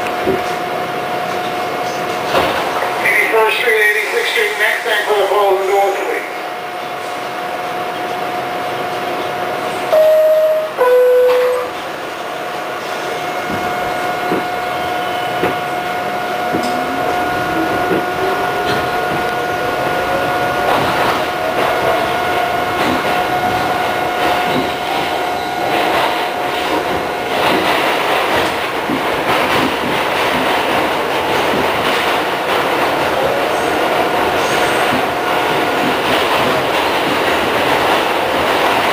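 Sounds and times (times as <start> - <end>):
wheels clacking on rails: 8.0 - 38.9
two-note door chime: 9.9 - 11.8
train motors whining: 12.8 - 27.7.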